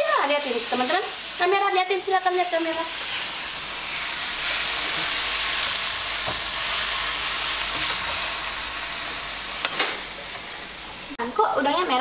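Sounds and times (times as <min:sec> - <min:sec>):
food sizzling in a wok: 0:00.0 - 0:12.0
wooden spatula scraping a pan: 0:03.9 - 0:08.5.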